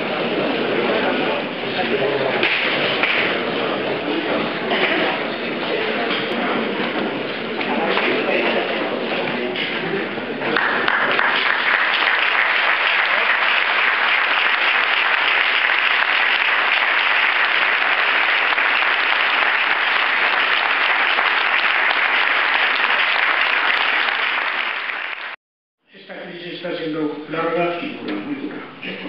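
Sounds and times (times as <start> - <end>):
audience applauding: 10.5 - 25.4.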